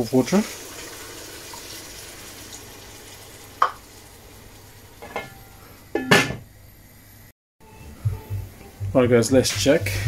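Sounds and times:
metal lid clanking onto pan: 5.0s - 5.4s, 6.0s - 6.4s.

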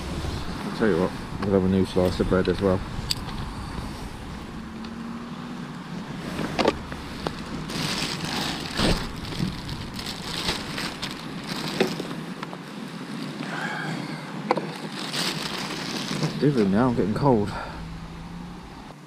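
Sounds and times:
wind rumble on microphone: 0.0s - 12.3s
plastic bag rustling: 6.0s - 12.4s, 14.6s - 17.4s.

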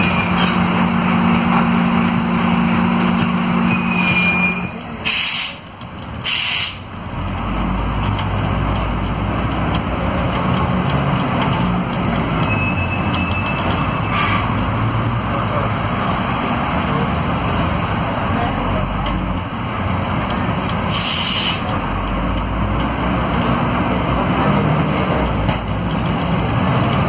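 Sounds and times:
bus diesel engine rumble: 0.0s - 27.0s
compressed air hiss: 6.2s - 6.8s.

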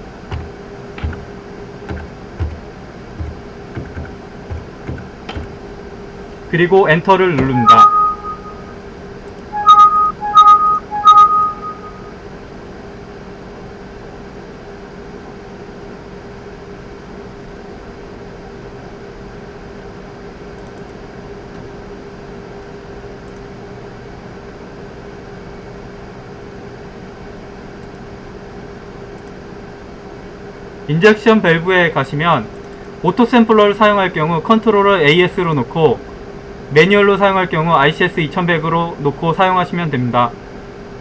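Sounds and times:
steady low hum with hiss: 0.0s - 41.0s
two-tone computer alert chimes: 7.4s - 8.8s, 9.6s - 12.1s.

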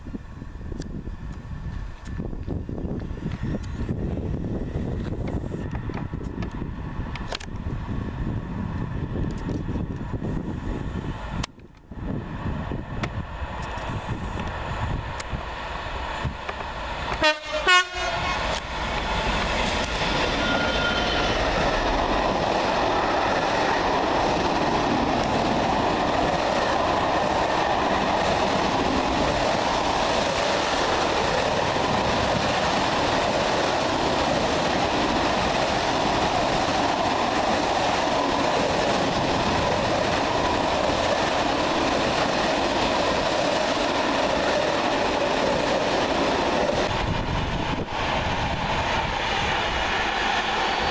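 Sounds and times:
freight train wheels rolling: 0.0s - 50.9s
train horn: 17.1s - 18.6s, 20.3s - 21.5s.

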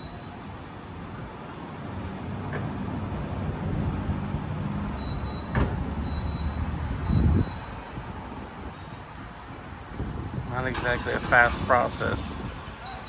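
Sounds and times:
fuelling station mechanical rumble: 0.0s - 13.0s
thump: 5.5s - 5.8s.

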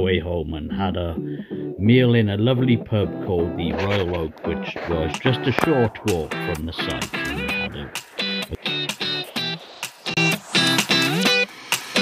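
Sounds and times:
background music with guitar: 0.0s - 12.0s.

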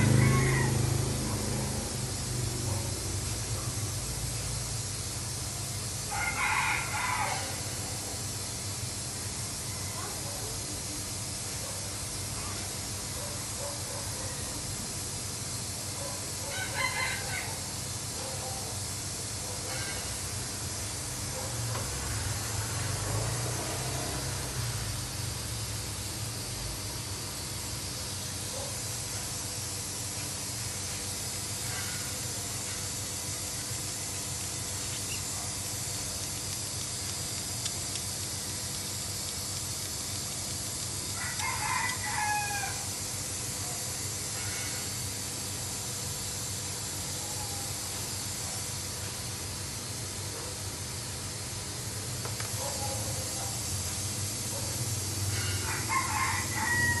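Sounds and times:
rooster crowing: 0.0s - 1.8s, 6.1s - 7.8s, 16.4s - 17.7s, 41.1s - 43.0s, 55.3s - 57.0s
steady hiss: 0.0s - 57.0s.

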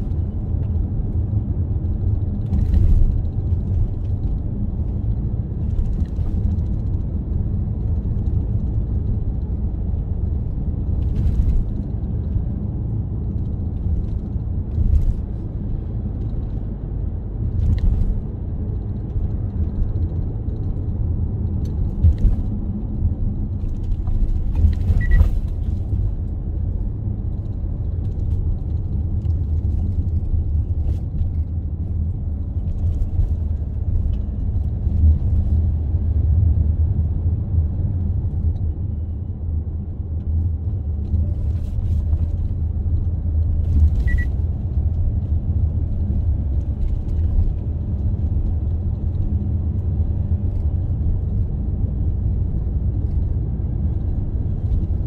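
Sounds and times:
car driving road rumble: 0.0s - 55.0s.

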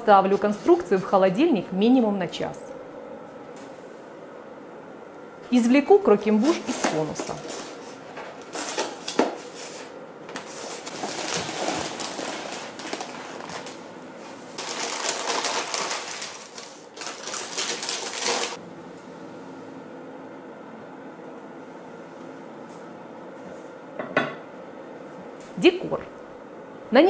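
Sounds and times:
paper rustling and crinkling: 6.4s - 18.6s.

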